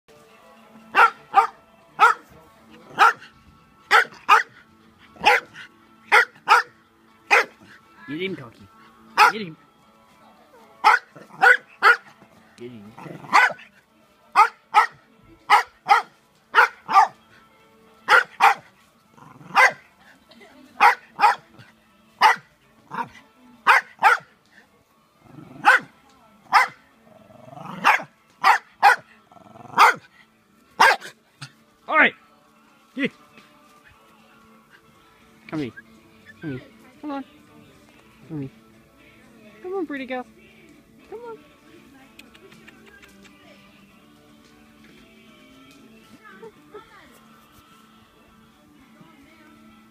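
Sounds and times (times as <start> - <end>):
small dog barking: 0.9 - 2.2, 3.0 - 3.2, 3.9 - 4.6, 5.2 - 7.6, 9.2 - 9.4, 10.8 - 12.1, 13.2 - 13.6, 14.4 - 17.2, 18.1 - 18.7, 19.4 - 19.8, 20.8 - 21.6, 22.2 - 24.3, 25.6 - 25.9, 26.5 - 26.8, 27.7 - 29.1, 29.7 - 30.0, 30.8 - 31.1.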